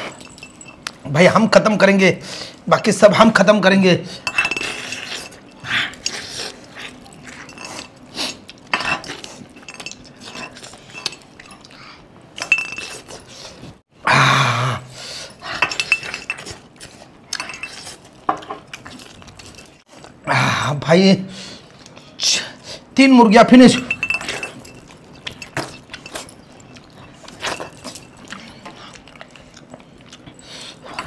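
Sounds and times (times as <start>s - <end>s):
clinks against a steel bowl: 0.0s - 1.0s, 4.2s - 5.6s, 8.7s - 11.6s, 12.4s - 13.0s, 15.6s - 16.5s, 23.7s - 28.8s
chewing food: 4.9s - 13.8s, 16.3s - 20.2s, 24.2s - 31.0s.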